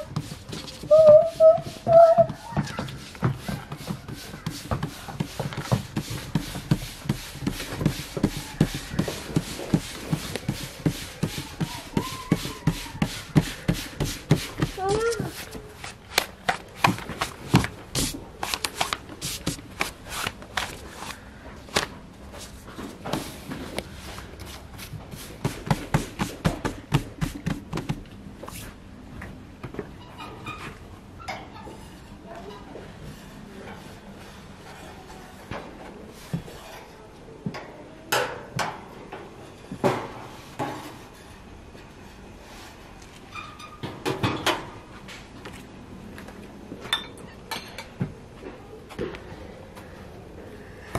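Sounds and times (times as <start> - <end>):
hands slapping pizza dough: 0.0 - 21.9, 23.1 - 28.8.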